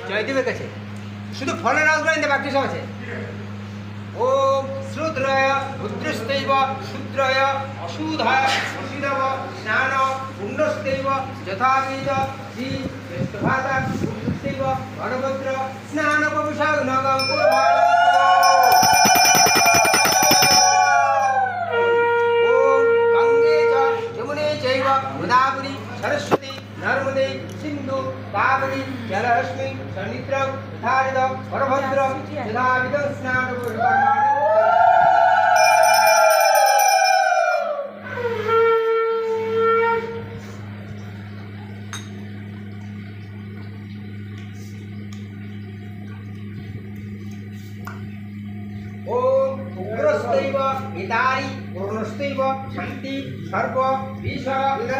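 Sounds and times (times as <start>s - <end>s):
hand bell rung rapidly: 17.2s - 21.1s, 35.6s - 37.3s
conch shell blown: 17.3s - 24.2s, 38.0s - 40.6s
conch shell blasts: 18.3s - 21.0s.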